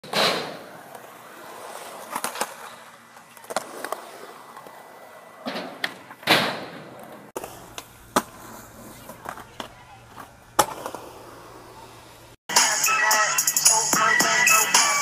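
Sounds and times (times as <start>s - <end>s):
skateboard landing hard: 0.0s - 1.0s, 5.4s - 11.2s
skateboard wheels rolling on concrete: 0.0s - 15.0s
skateboard clacks: 5.4s - 12.2s.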